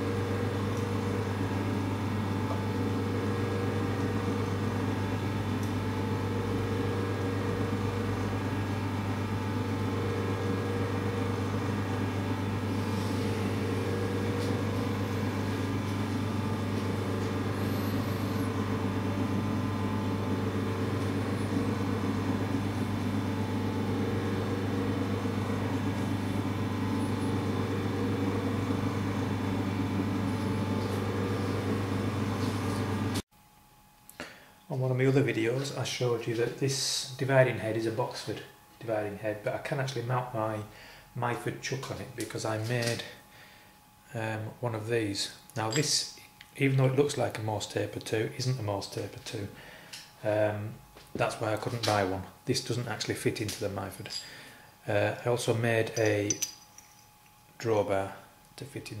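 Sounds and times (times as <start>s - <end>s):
electric motor humming: 0.0s - 33.2s.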